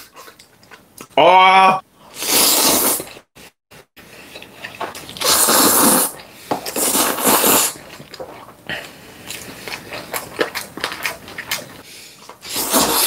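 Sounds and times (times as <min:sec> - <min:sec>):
smacking chewing sounds: 0:00.0 - 0:01.2, 0:04.0 - 0:05.4, 0:06.1 - 0:12.8
person slurping noodles: 0:02.1 - 0:03.3, 0:04.1 - 0:08.0, 0:12.4 - 0:13.0.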